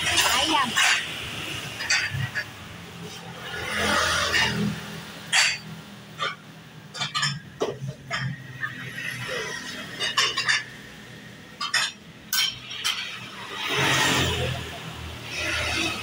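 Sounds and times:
metal spatulas clinking on griddle: 5.3s - 8.3s, 9.9s - 10.8s, 11.6s - 13.2s.

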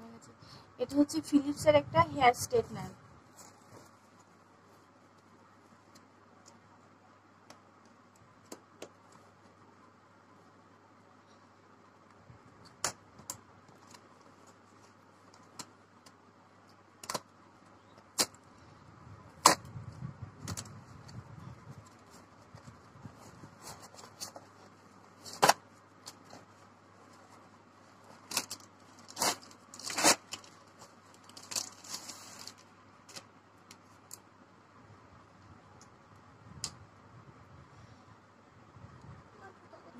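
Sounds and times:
packaging rustling: 23.6s - 33.8s.

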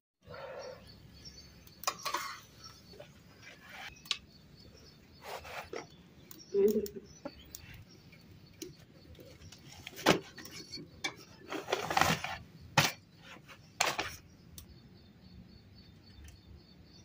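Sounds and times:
kitchen utensils clinking: 1.8s - 2.5s.

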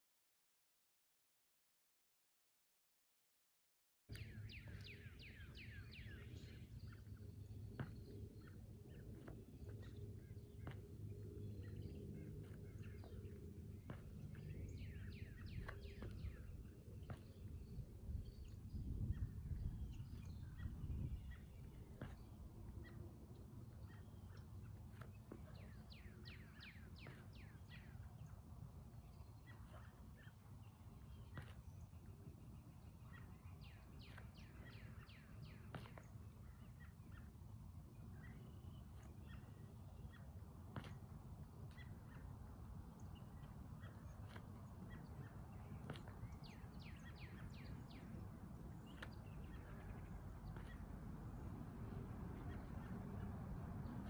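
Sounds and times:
birds chirping: 4.1s - 54.0s.

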